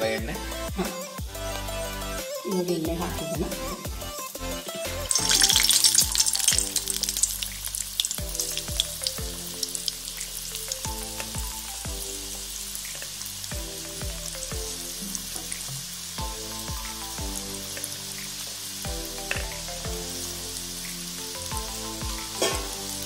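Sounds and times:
food deep-frying in hot oil: 0:05.0 - 0:23.0.

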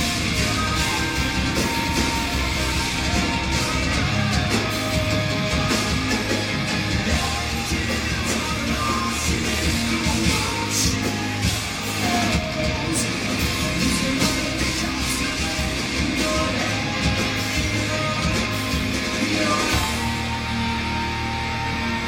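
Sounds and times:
drums: 0:00.0 - 0:22.0
electric guitars: 0:00.0 - 0:22.0
lead vocal singing: 0:00.0 - 0:22.0.

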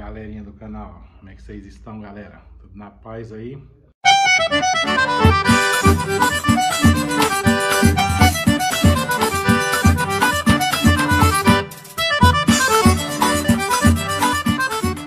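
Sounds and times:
instrumental music with quick beat: 0:04.0 - 0:15.0.

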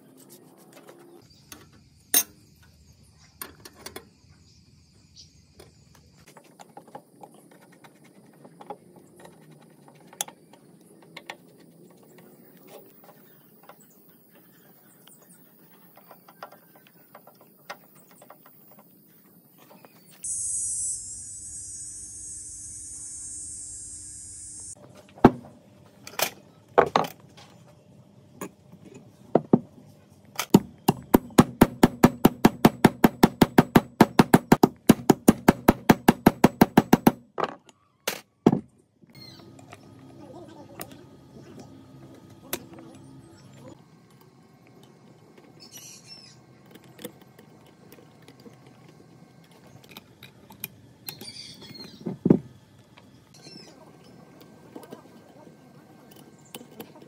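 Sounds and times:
hiss: 0:20.2 - 0:24.8
sharp knocks on metal: 0:30.5 - 0:37.2.

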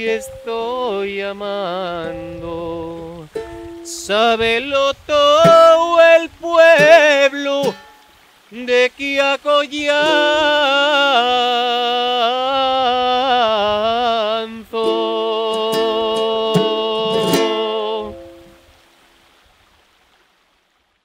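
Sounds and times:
ukulele plucks: 0:00.0 - 0:01.0, 0:01.9 - 0:08.0, 0:09.8 - 0:11.2, 0:14.6 - 0:18.7
man singing with vibrato: 0:00.0 - 0:18.6.

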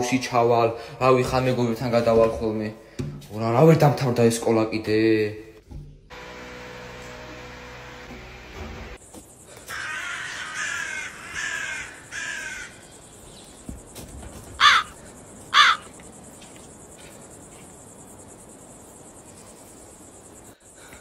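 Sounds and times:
crow cawing: 0:09.5 - 0:12.9, 0:14.6 - 0:16.0.

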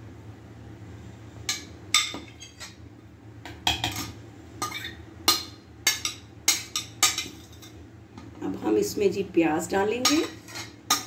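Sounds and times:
spoon scraping and clinking on plate: 0:10.0 - 0:11.0.

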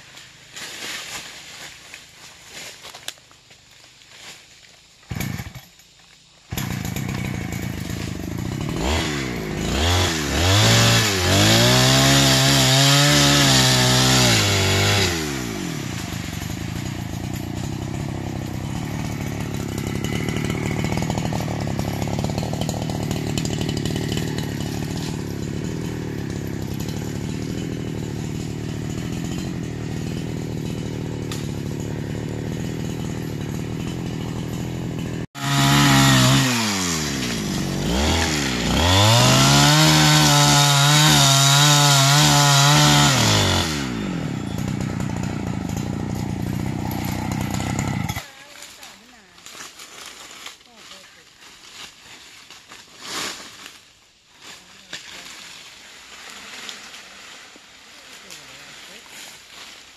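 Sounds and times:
chainsaw engine revving: 0:05.1 - 0:05.8, 0:06.5 - 0:49.2, 0:54.8 - 0:59.9.

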